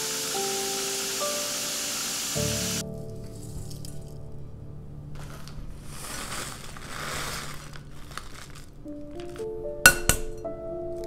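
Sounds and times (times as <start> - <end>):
background music with held notes: 0.0 - 6.0, 8.8 - 11.0.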